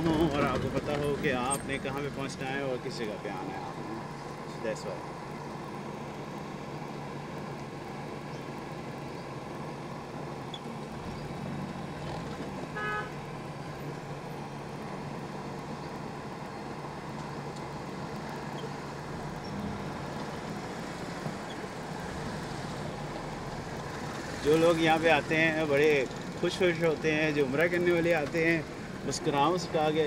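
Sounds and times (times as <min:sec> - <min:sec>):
traffic and engine noise: 0:00.0 - 0:30.0
vehicle horn toot: 0:12.8 - 0:13.2.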